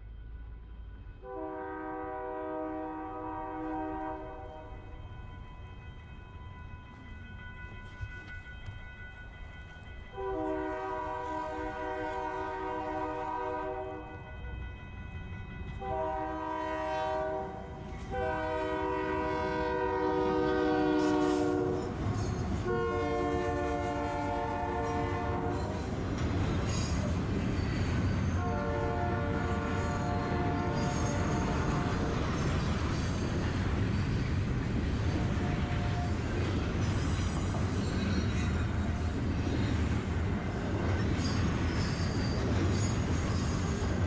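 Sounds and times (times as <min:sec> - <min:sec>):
train rumble: 0:00.0 - 0:44.0
locomotive air horn blasts: 0:01.2 - 0:04.6, 0:10.2 - 0:14.2, 0:15.8 - 0:21.8, 0:22.6 - 0:25.7, 0:28.4 - 0:32.1.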